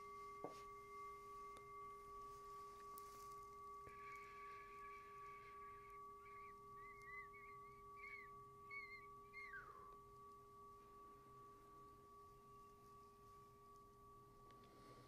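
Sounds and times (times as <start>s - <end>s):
faint steady tones: 0.0s - 15.0s
faint warbling chirps: 2.7s - 10.0s.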